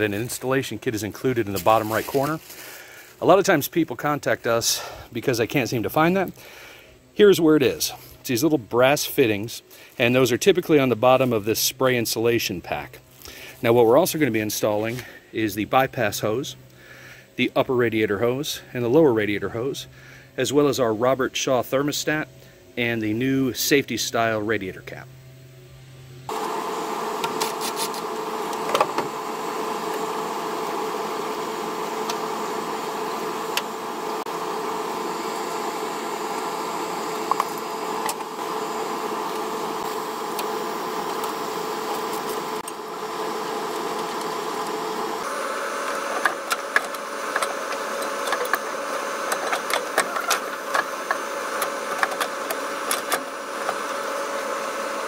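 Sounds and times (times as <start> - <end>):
steady machine hum: 24.2 - 55.0.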